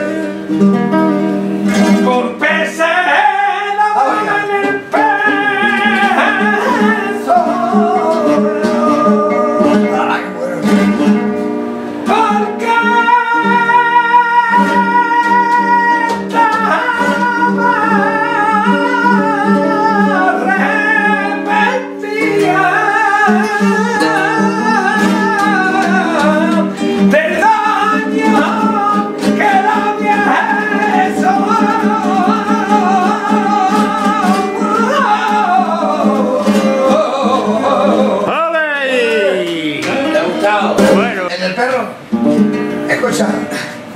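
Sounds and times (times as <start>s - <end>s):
man singing flamenco: 0.0s - 42.8s
acoustic guitar: 0.0s - 43.9s.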